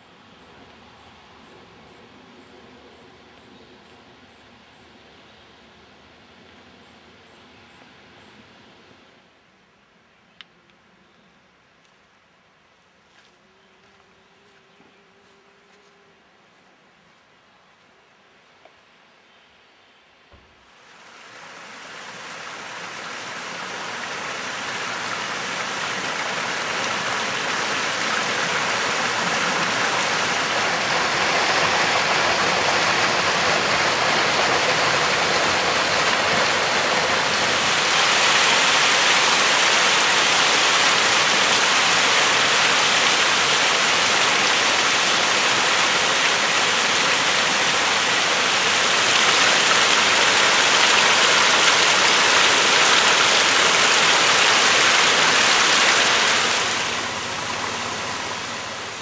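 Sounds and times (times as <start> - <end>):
stream rushing over boulders: 20.6 - 59.0.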